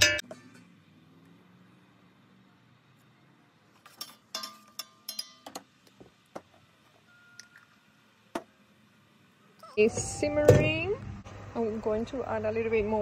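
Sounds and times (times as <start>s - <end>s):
metal spoon clinking in a pot: 4.0s - 5.6s.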